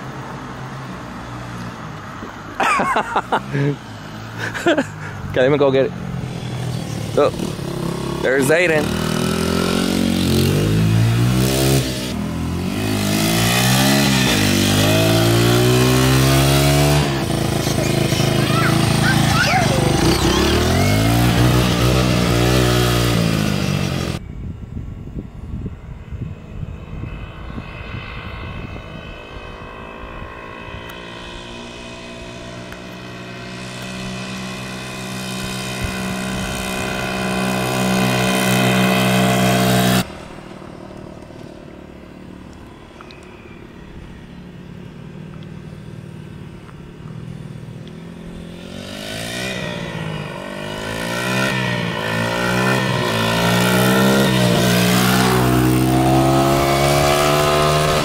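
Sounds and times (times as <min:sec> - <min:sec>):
dirt bike engine revving: 0:02.9 - 0:24.2, 0:31.0 - 0:40.5, 0:48.0 - 0:58.0.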